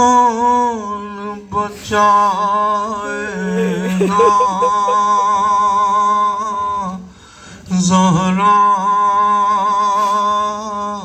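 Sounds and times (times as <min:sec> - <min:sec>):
man singing lament into microphone: 0:00.0 - 0:11.0
short breath: 0:07.1 - 0:07.7.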